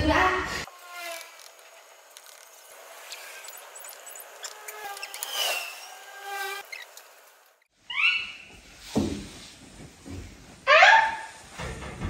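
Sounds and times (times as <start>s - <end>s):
baby monkey calls: 7.9s - 8.5s.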